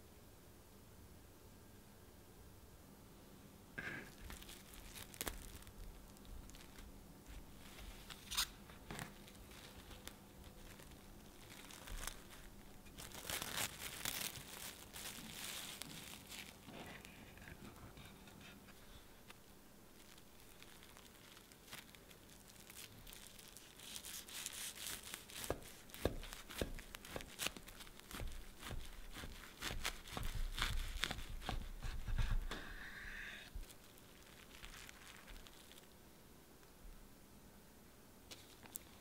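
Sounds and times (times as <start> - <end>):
plastic wrap crinkling and tearing: 3.8 - 32.5, 33.4 - 36.0, 38.3 - 39.0.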